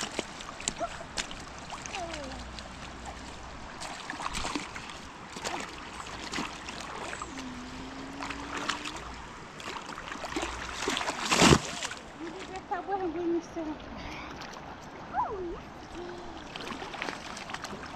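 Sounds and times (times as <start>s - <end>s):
short splashes and knocks: 0.0s - 7.4s, 8.1s - 12.6s, 15.9s - 17.9s
river water flowing: 0.0s - 17.9s.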